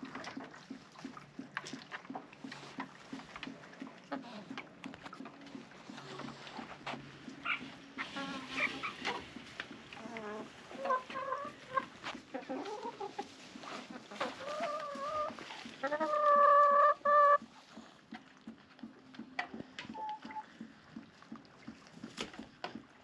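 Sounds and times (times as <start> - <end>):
hens clucking: 0.0 - 22.8
hen drawn-out call: 7.4 - 9.2.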